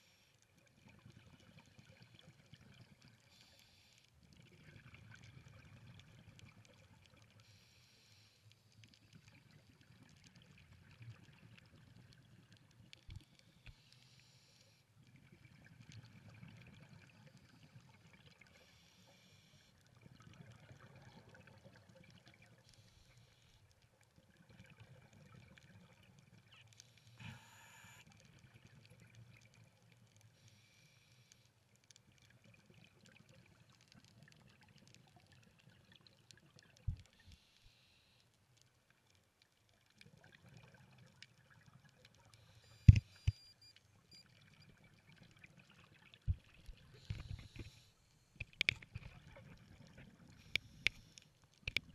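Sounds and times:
regulator inhale hiss: 3.3s - 4.0s, 7.4s - 8.6s, 13.7s - 14.8s, 18.6s - 19.7s, 27.1s - 28.0s, 30.4s - 31.4s, 37.2s - 38.2s, 47.0s - 48.1s.

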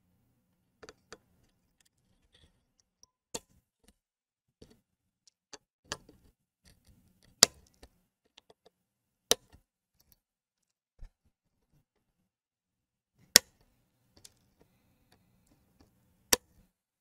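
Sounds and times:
small ticks of wire and tool: 0.8s - 4.0s, 4.6s - 11.7s.

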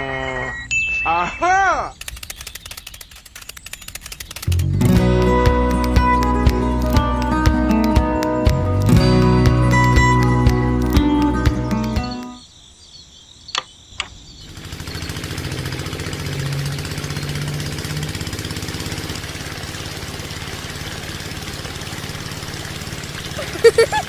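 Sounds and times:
small motor buzzing rattle: 1.9s - 6.4s, 14.4s - 24.0s.

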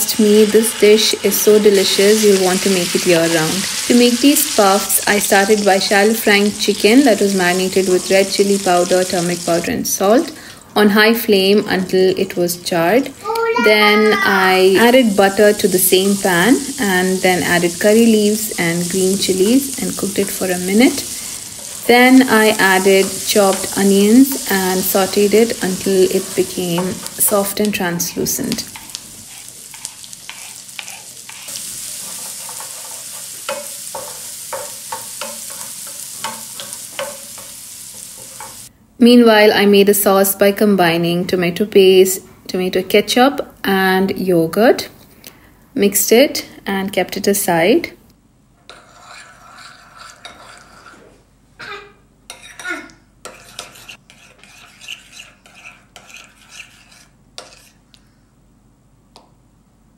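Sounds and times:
onions sizzling in a frying pan: 0.0s - 10.3s, 13.2s - 38.7s
wooden spoon scraping a pan: 14.9s - 38.7s, 48.7s - 51.3s, 53.2s - 57.8s.

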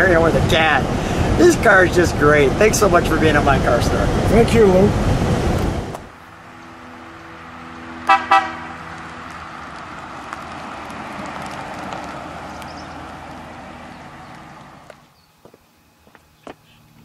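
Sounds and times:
car driving past: 4.9s - 15.1s
car horn toots: 8.0s - 8.8s.

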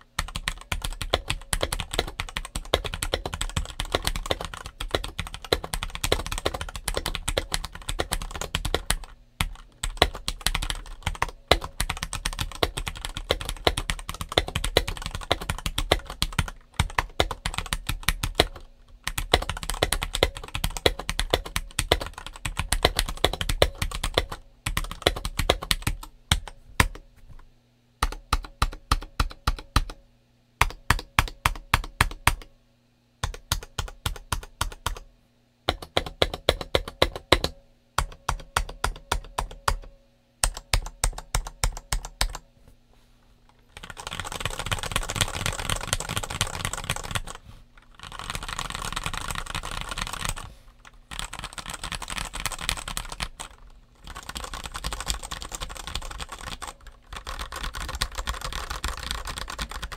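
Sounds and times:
mechanical keyboard typing: 0.2s - 27.0s, 28.0s - 30.0s, 30.6s - 32.5s, 33.2s - 35.0s, 35.7s - 42.4s, 43.7s - 59.9s.

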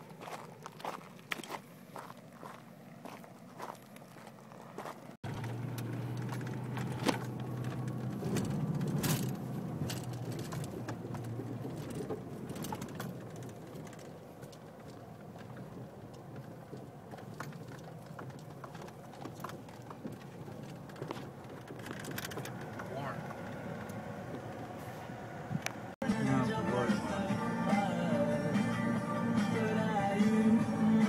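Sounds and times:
truck engine hum: 0.0s - 31.0s
cab rattles and knocks: 5.2s - 24.8s.

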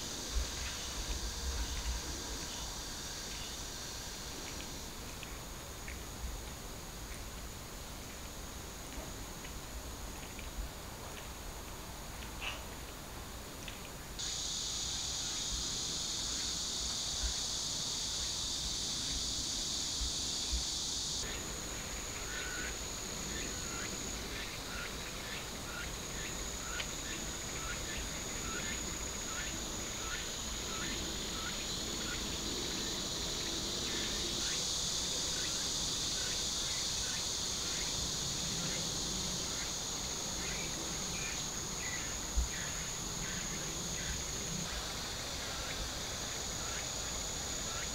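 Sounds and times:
insect chorus: 0.0s - 47.9s.

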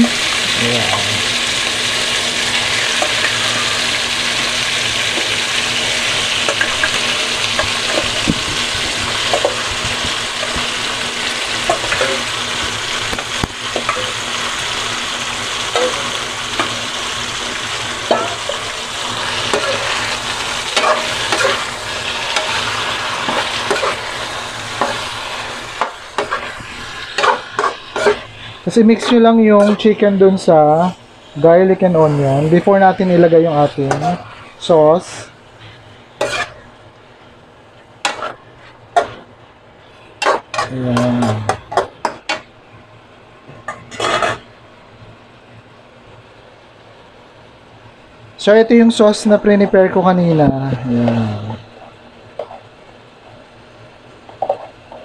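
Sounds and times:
chicken sizzling in oil: 0.0s - 36.9s.

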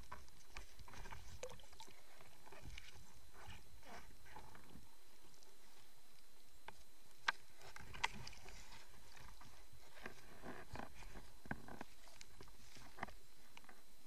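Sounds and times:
faint steady hiss: 0.0s - 14.0s.

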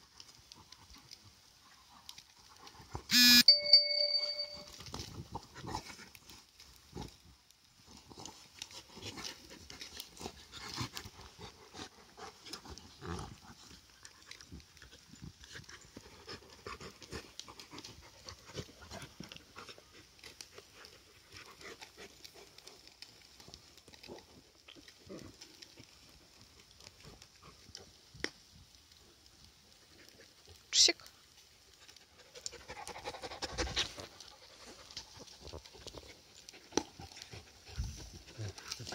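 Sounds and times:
sharp high-pitched sound: 3.1s - 4.7s
dogs growling and snorting: 5.2s - 6.3s, 7.9s - 22.9s, 32.4s - 38.9s.

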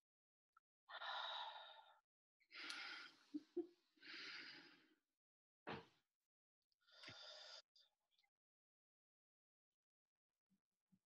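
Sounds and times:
person breathing slowly: 0.9s - 5.0s, 6.8s - 7.9s.

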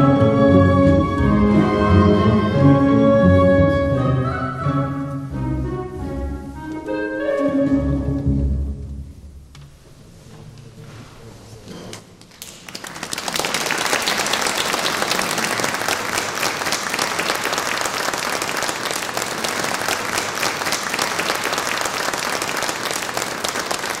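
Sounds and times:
orchestral music: 0.0s - 9.4s
audience applauding: 12.4s - 24.0s.

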